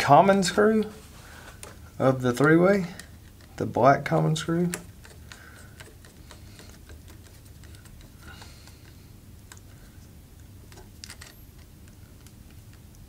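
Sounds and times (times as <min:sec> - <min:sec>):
low steady hum: 0:00.0 - 0:13.0
screwdriver clicks: 0:10.7 - 0:12.8.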